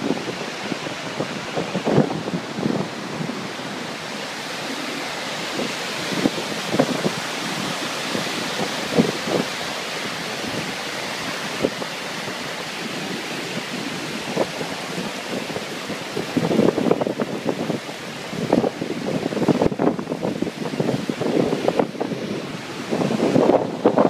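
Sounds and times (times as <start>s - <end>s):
waterfall rushing: 0.0s - 24.0s
wind buffeting microphone: 0.0s - 24.0s.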